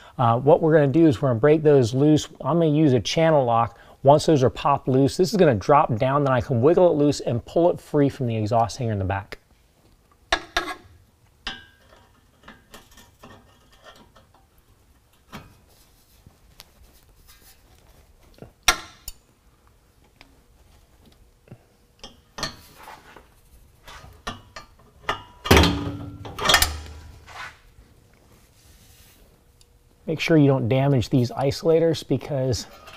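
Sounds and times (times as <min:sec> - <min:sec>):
metal clanks: 0:24.2 - 0:27.2
pliers and metal parts clinking: 0:24.3 - 0:27.0.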